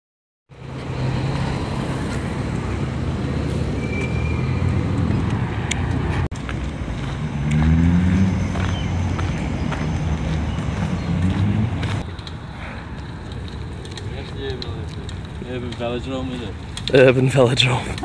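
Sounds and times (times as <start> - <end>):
road traffic rumble: 0.5 - 18.0
vehicle engine speeding up: 0.6 - 12.0.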